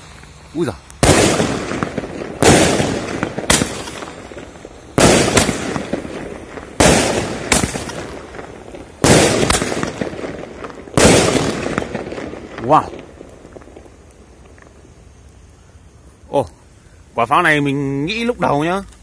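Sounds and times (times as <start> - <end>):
sharp firework cracks: 0.0 - 16.1
firework booms: 1.0 - 14.9.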